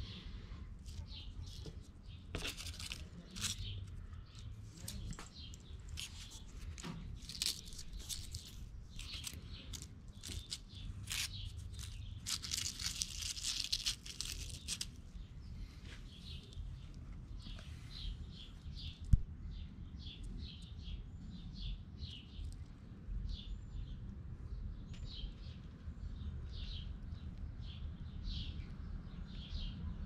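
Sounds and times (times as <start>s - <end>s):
dried petals crackling: 0.4s - 15.1s.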